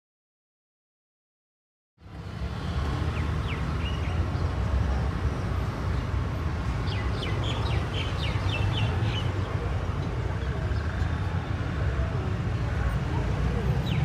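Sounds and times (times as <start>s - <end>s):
small birds chirping: 6.8s - 9.5s.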